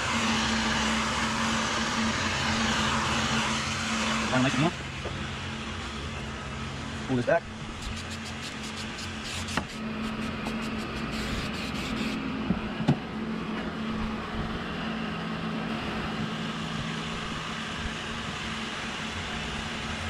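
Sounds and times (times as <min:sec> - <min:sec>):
heat gun blowing: 0:00.0 - 0:04.7, 0:07.7 - 0:12.2.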